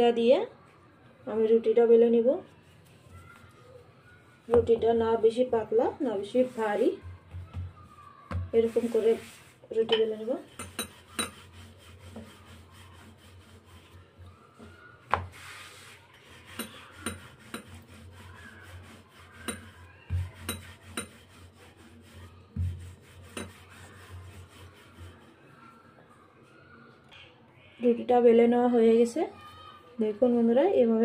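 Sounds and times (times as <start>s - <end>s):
rolling pin rolling dough: 2.6s - 25.8s.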